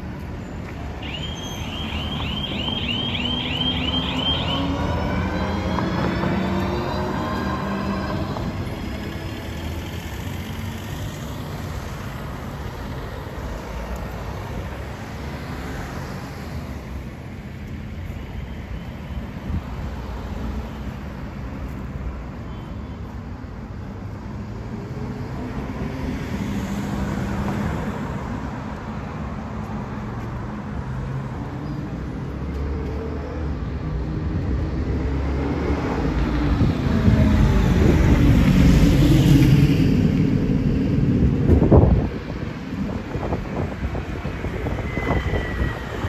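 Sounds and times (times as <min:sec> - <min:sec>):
traffic rumble: 0:00.0 - 0:46.0
vehicle passing close: 0:02.7 - 0:11.2.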